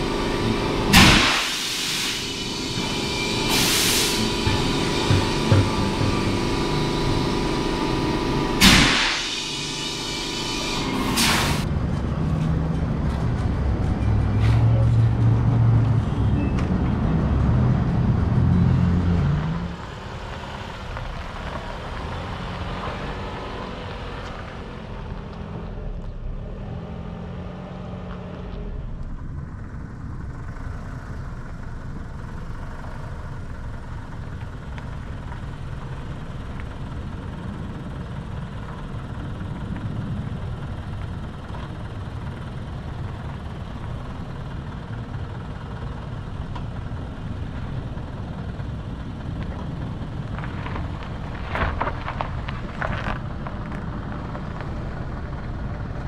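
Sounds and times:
loud hiss: 0.0s - 6.9s, 8.6s - 11.6s
suv engine working hard: 0.0s - 16.3s, 28.7s - 56.0s.

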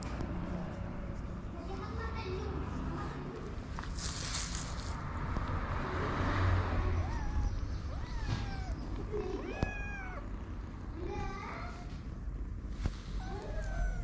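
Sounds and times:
kitten meowing: 6.7s - 10.3s, 13.2s - 14.0s.

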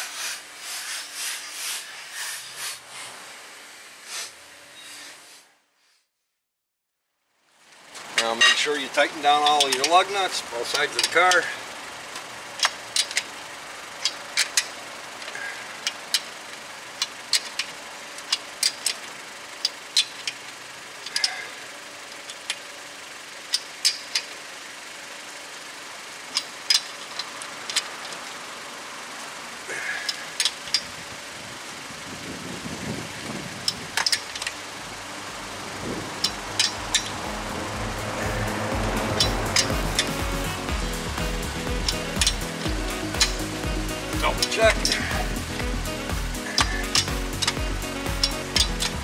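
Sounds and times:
low engine rumble: 7.4s - 49.0s
wrench clicks: 12.6s - 13.3s, 15.8s - 21.3s, 23.5s - 24.4s, 26.3s - 28.2s, 33.6s - 34.6s, 36.2s - 37.1s, 46.4s - 49.0s.

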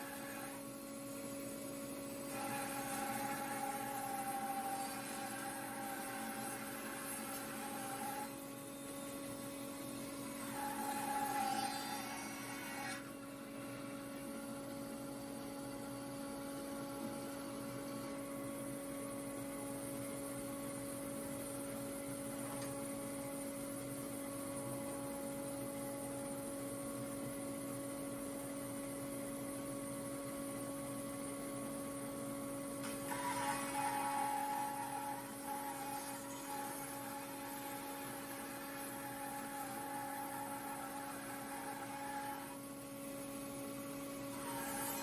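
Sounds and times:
bandsaw humming: 2.3s - 8.4s, 10.4s - 13.1s, 32.8s - 45.0s
bandsaw cutting log: 32.9s - 42.6s.

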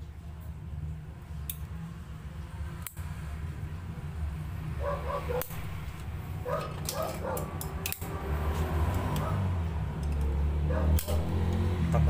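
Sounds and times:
sharp metal clicks: 2.8s - 3.0s, 5.4s - 8.2s, 10.0s - 11.7s
dog barking: 4.8s - 5.6s, 6.4s - 7.5s, 10.6s - 11.0s.

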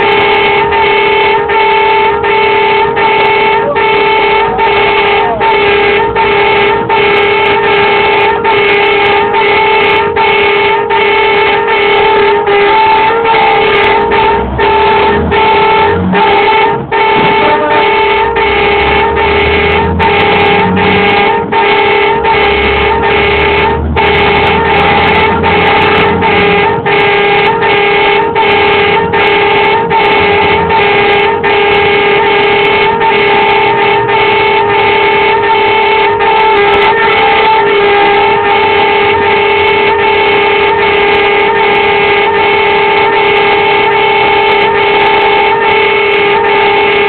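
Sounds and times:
pulsing truck warning horn: 0.0s - 47.0s
truck engine rumble: 0.0s - 47.0s.

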